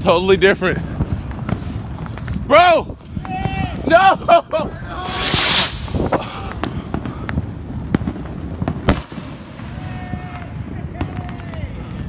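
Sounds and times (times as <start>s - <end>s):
firework crackles and pops: 0.0s - 12.0s
firework rocket hiss: 4.9s - 7.4s
firework bang: 5.0s - 11.6s.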